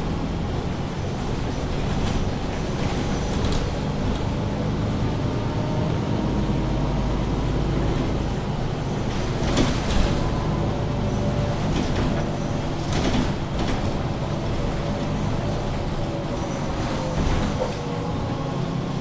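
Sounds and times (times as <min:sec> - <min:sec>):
bus diesel engine running: 0:00.0 - 0:19.0
low road rumble: 0:00.0 - 0:19.0
short knocks and rattles: 0:09.0 - 0:10.4, 0:11.4 - 0:17.8.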